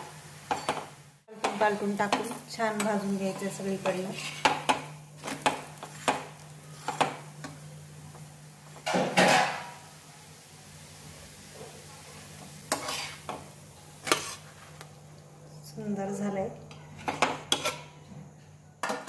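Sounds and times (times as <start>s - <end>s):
steel spatula scraping iron griddle: 2.7s - 7.1s, 12.7s - 13.4s, 14.0s - 14.6s, 16.8s - 18.0s.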